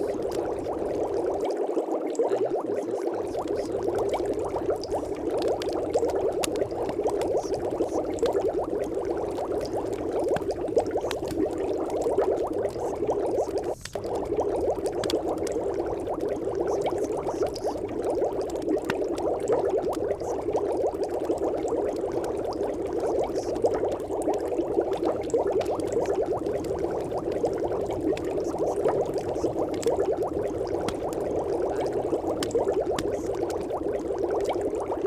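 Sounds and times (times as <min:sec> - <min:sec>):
dense muffled crackle: 0:00.0 - 0:35.0.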